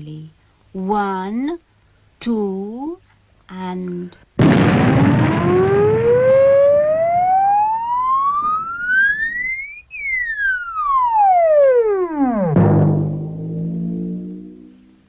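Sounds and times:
cartoon creature siren-like wail: 5.0s - 12.5s.

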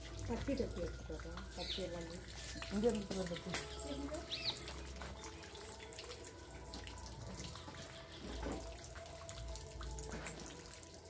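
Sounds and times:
water running and trickling: 0.0s - 11.0s.

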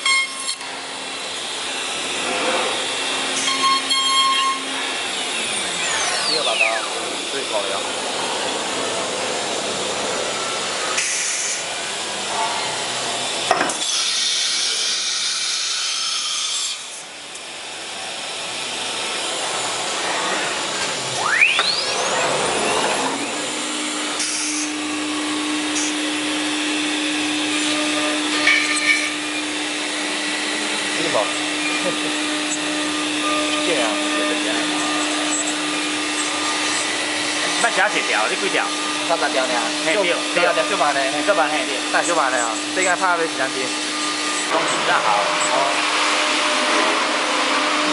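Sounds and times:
router spindle whine and hum: 0.0s - 47.9s
loud air hiss: 10.8s - 11.9s, 24.0s - 24.8s.

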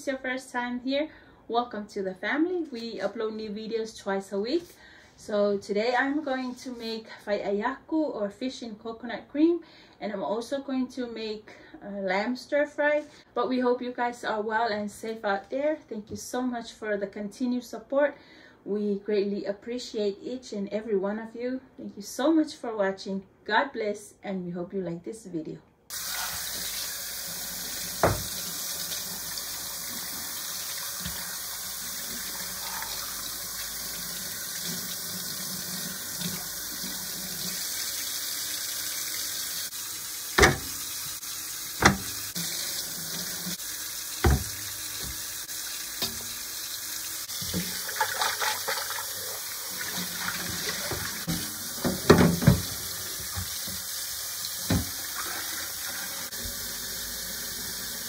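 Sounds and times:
tap running into sink: 27.7s - 28.9s, 40.3s - 43.6s, 44.2s - 45.3s, 46.0s - 46.4s, 47.3s - 49.0s, 49.9s - 53.9s, 54.6s - 55.4s
water splashing: 40.4s - 43.6s, 44.2s - 45.2s, 47.2s - 53.8s.

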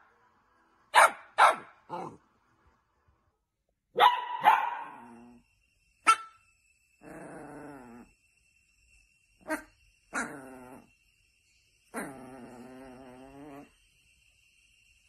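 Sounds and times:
dog barking: 0.9s - 2.2s, 3.9s - 5.2s, 6.0s - 6.4s
dog growling: 1.9s - 2.2s, 4.9s - 5.4s, 7.0s - 8.1s, 10.2s - 10.9s, 11.9s - 13.8s.

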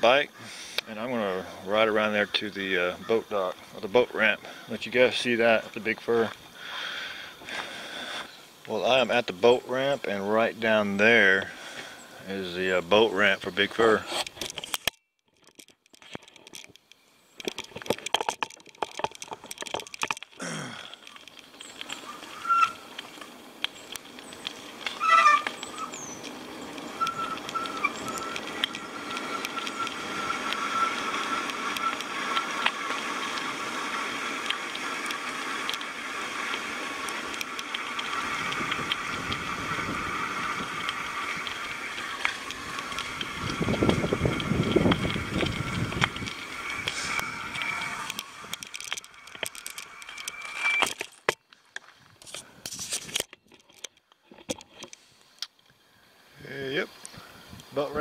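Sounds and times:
bicycle tyres on wet road: 0.0s - 58.0s
bicycle clicks and rattles: 12.6s - 55.8s.

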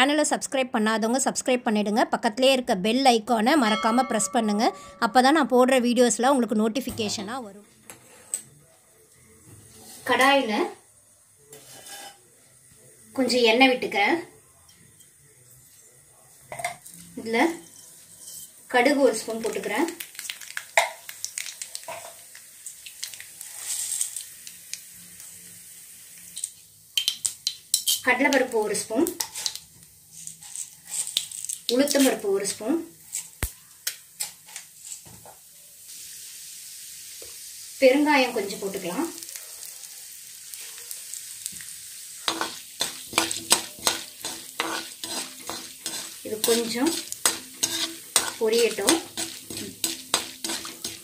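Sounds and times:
hot oil sizzling: 3.4s - 51.0s
metal spatula scraping pan: 11.5s - 12.2s, 17.6s - 18.7s, 42.3s - 51.0s
mustard seeds spluttering: 19.4s - 21.9s.

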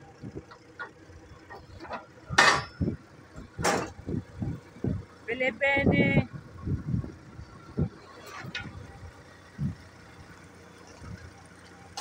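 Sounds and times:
metal parts clanking: 1.8s - 2.9s.

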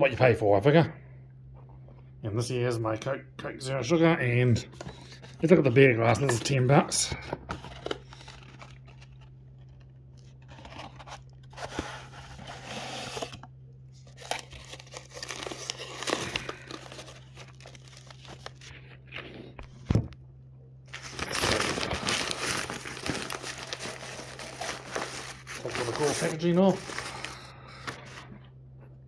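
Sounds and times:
steady low hum: 0.0s - 29.0s
paper wrapping rustling and tearing: 7.5s - 13.4s, 14.0s - 19.8s, 20.9s - 28.2s.

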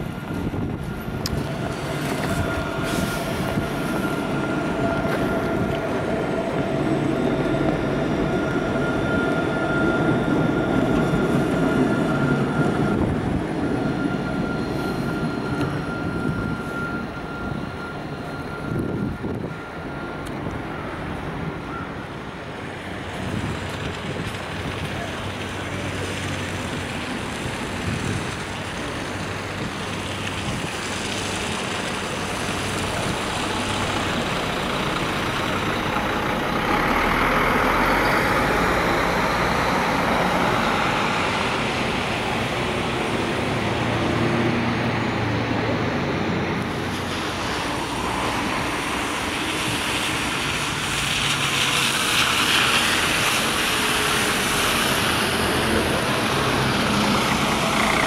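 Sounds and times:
traffic noise: 0.0s - 58.0s
heavy vehicle passing: 22.7s - 58.0s.

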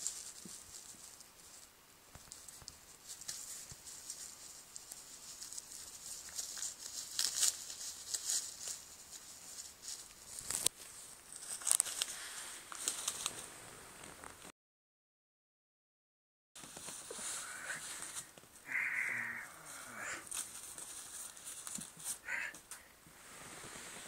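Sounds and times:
wrapper crinkling: 2.3s - 10.7s, 11.3s - 13.4s.

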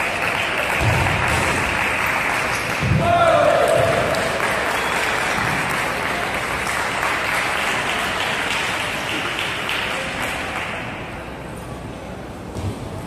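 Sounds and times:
spectators clapping: 0.0s - 11.0s.

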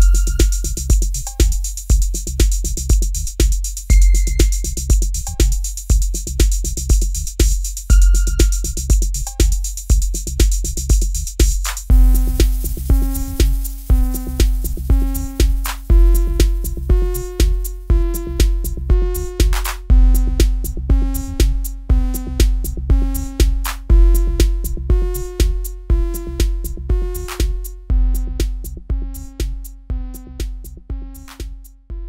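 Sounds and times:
drum machine beat: 0.0s - 32.0s.

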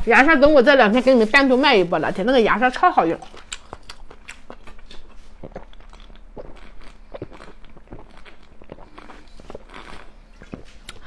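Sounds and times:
person gulping fizzy drink: 3.5s - 11.0s.

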